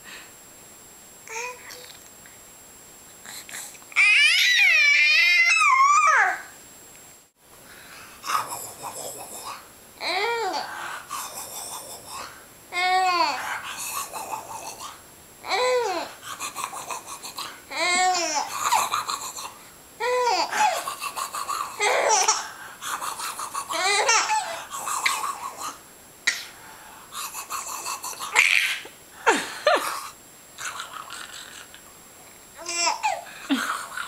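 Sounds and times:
baby laughing: 17.7 - 19.4, 20.0 - 22.4, 23.3 - 25.8, 27.5 - 31.7, 32.6 - 34.0
baby squealing: 28.3 - 28.9.

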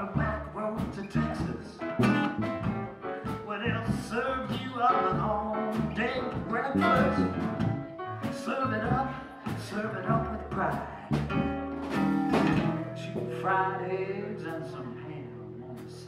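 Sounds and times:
blues band playing: 0.0 - 16.0
melodic guitar lead line: 1.8 - 3.4, 6.7 - 8.5, 11.4 - 15.9.

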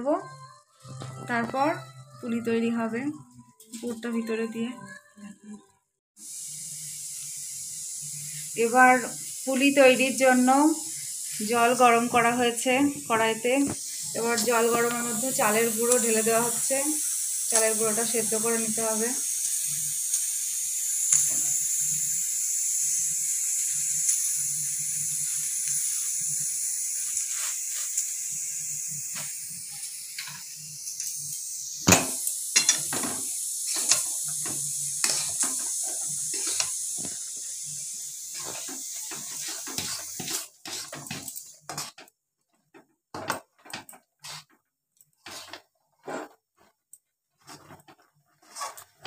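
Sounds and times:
steady hiss from pot: 6.2 - 42.1, 43.2 - 44.5, 45.2 - 46.4
metal spatula scraping a pot: 32.5 - 37.3, 38.3 - 42.1, 43.2 - 44.6, 45.2 - 46.7, 47.4 - 49.0.

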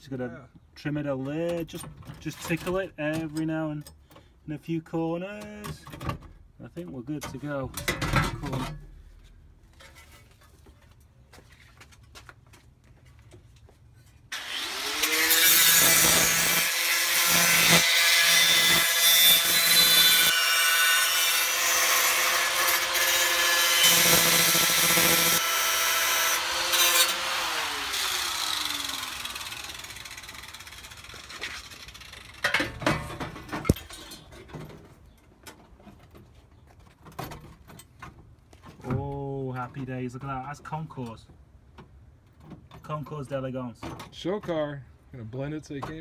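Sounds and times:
angle grinder cutting metal: 14.3 - 32.4.

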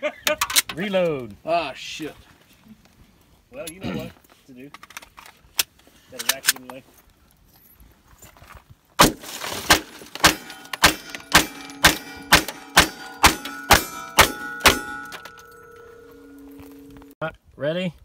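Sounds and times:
steady tone: 10.4 - 17.2.

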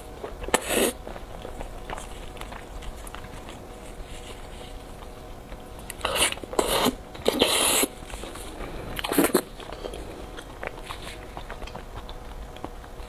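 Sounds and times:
slurping and sucking food: 0.4 - 1.1, 5.9 - 11.2.

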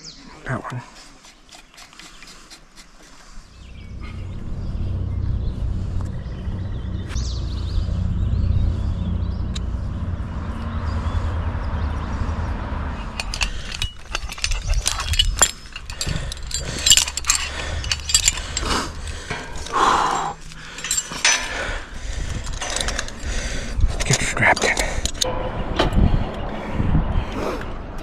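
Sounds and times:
low steady rumble: 3.5 - 24.0
metal tools clicking and clinking: 13.1 - 25.3.

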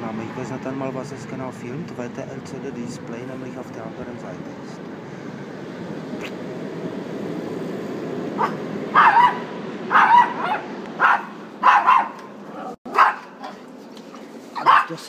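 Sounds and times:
small dog barking: 8.4 - 13.6, 14.6 - 15.0.

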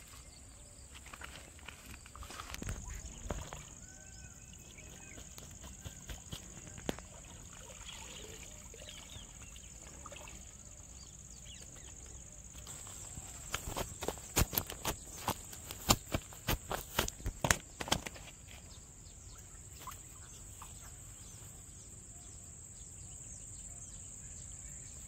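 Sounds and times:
riverbank ambience: 0.0 - 23.4
faint chirps: 19.0 - 25.0.

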